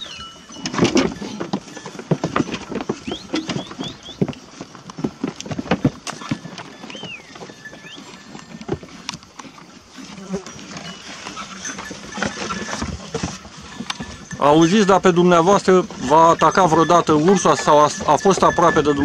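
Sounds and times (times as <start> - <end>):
hooves clattering on hard ground: 0.0 - 19.0
bird chirping: 3.0 - 4.2, 6.8 - 8.1.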